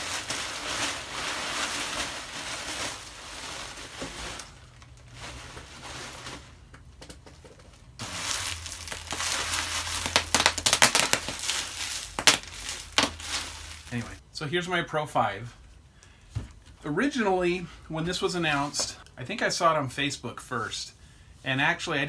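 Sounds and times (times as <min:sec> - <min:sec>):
bubble wrap crinkling: 0:00.0 - 0:06.8, 0:07.5 - 0:14.2
bubble wrap popping: 0:00.0 - 0:14.2.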